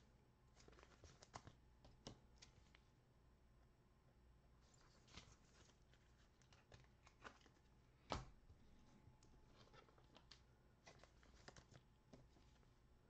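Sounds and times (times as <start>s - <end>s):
cards clicking and rustling: 0.5s - 2.8s, 4.7s - 8.3s, 9.2s - 12.6s.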